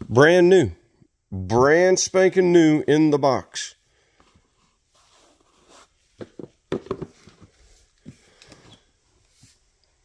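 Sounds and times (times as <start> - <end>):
handling knocks and rustles: 5.0 - 9.6.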